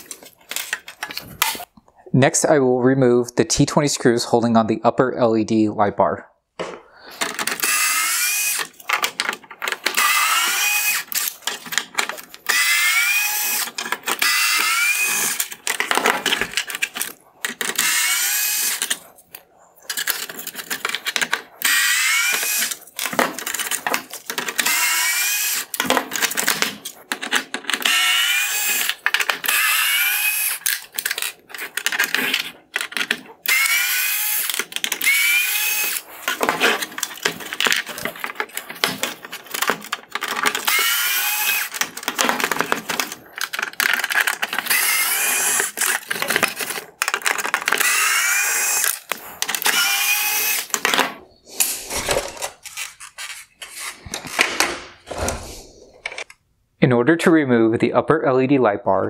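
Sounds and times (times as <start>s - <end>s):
electric screwdriver motor whine: 7.2s - 8.8s, 9.8s - 11.4s, 12.4s - 15.6s, 17.6s - 19.0s, 21.6s - 22.8s, 24.6s - 25.8s, 27.8s - 31.3s, 33.4s - 37.3s, 40.5s - 42.7s, 43.8s - 46.6s, 47.3s - 50.8s.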